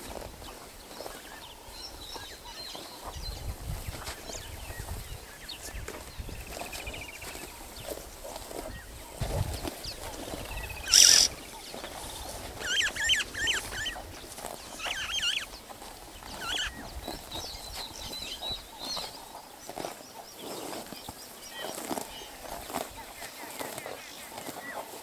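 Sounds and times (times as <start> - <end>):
grass being cropped: 0.0 - 25.0
starlings whistling: 10.6 - 11.4, 12.6 - 14.0, 14.7 - 15.5, 16.3 - 16.8.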